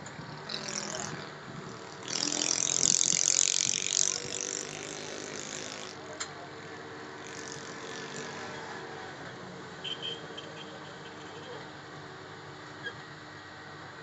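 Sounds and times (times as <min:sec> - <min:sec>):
mechanical rattling: 0:00.4 - 0:06.0.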